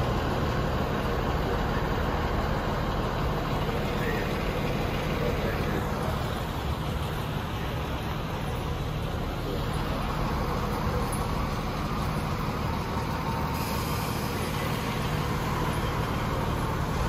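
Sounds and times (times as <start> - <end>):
diesel engines rumbling: 0.0 - 17.0
hiss: 13.1 - 17.0.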